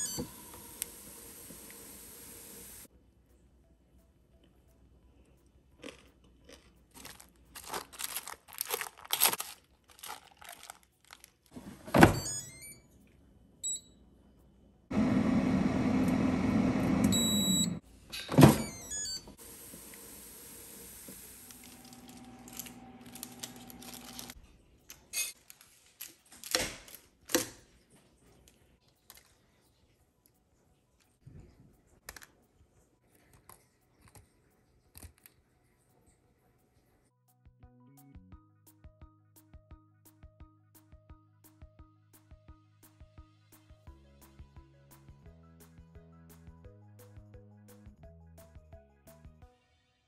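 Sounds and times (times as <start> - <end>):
air fryer whirring: 0.0 - 2.9, 14.9 - 24.3
short high beeps: 17.1 - 17.8.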